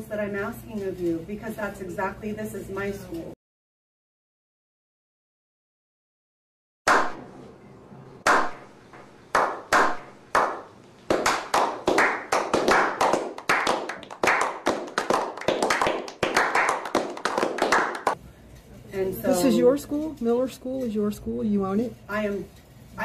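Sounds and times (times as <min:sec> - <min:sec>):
hand clapping: 0:06.9 - 0:07.2, 0:08.2 - 0:18.2.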